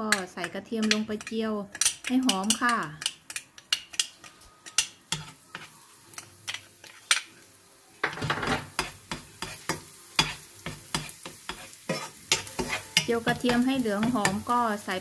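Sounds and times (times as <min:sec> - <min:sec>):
garlic frying in hot oil: 0:00.0 - 0:04.1, 0:04.7 - 0:15.0
utensil scraping a pan: 0:08.1 - 0:14.4.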